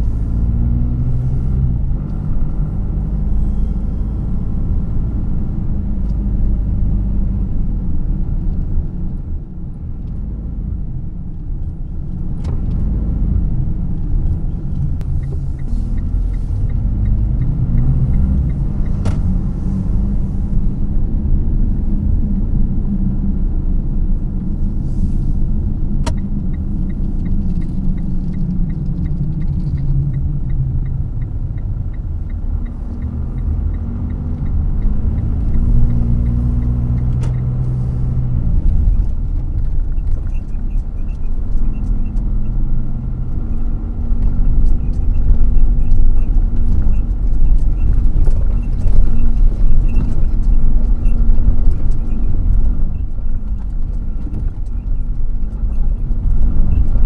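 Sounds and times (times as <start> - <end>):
car engine and road rumble: 0.0 - 57.0
turn signal ticking: 11.3 - 23.0, 25.5 - 57.0.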